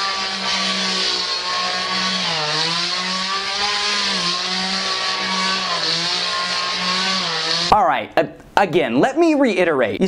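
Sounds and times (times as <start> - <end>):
chainsaw running: 0.0 - 7.7.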